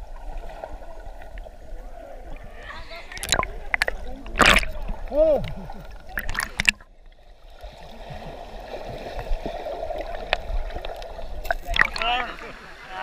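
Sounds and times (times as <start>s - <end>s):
muffled underwater churning: 0.0s - 13.0s
water splashing: 0.0s - 13.0s
bubble clicks: 3.1s - 4.9s, 6.1s - 6.9s, 11.5s - 12.0s.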